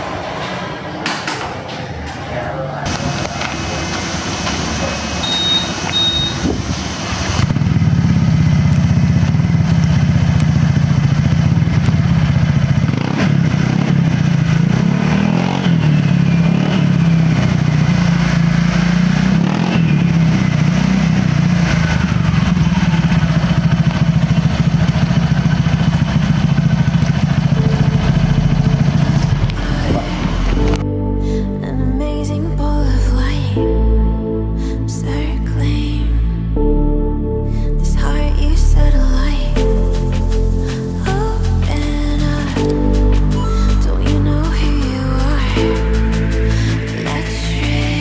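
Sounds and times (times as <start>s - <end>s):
scooter engine idling: 2.9s - 30.8s, 40.0s - 48.0s.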